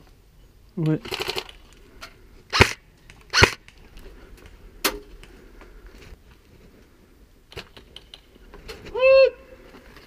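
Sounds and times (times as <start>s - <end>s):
airsoft gun shots: 2.5s - 3.6s.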